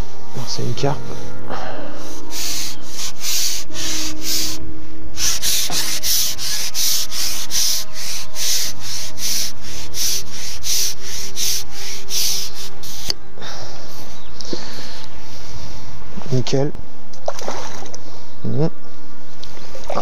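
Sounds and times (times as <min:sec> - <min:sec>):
rhythmic rasping: 0:00.0 - 0:16.1.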